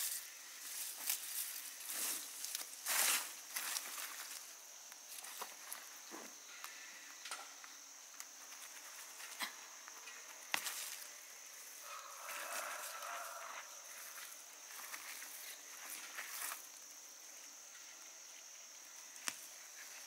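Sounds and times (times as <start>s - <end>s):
leaves rustling: 0.0s - 6.1s, 8.2s - 20.0s
insect trilling: 0.0s - 20.0s.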